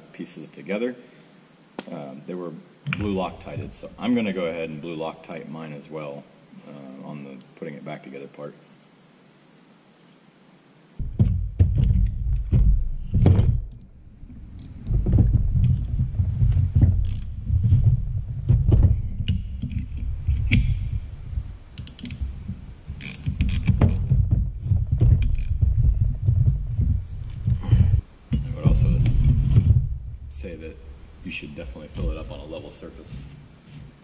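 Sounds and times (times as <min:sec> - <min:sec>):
heavy low rumble: 0:11.0 - 0:33.2
ratchet wrench clicking: 0:17.0 - 0:17.3, 0:21.8 - 0:22.2, 0:23.0 - 0:24.0, 0:25.3 - 0:25.6.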